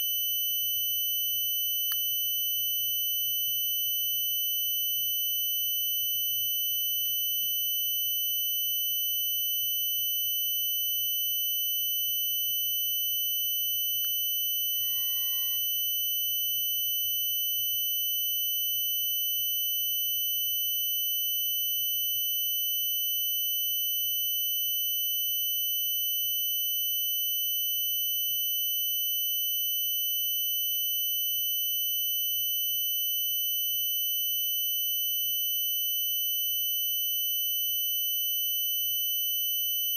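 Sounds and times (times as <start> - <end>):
high-pitched electronic tone: 14.8 - 15.8.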